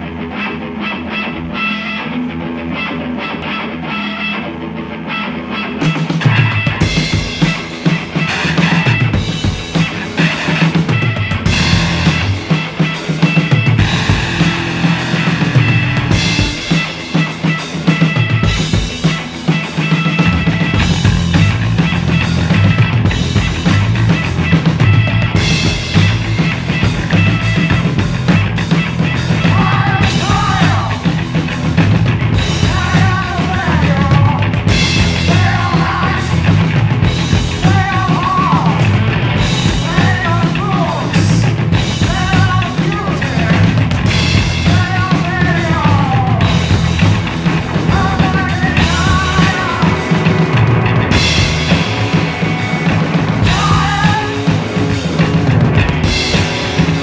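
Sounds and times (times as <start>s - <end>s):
rock band playing live: 0.0s - 57.0s
man singing: 29.4s - 31.2s, 32.5s - 36.8s, 37.6s - 39.0s, 39.6s - 46.6s, 47.8s - 50.5s, 53.4s - 54.7s.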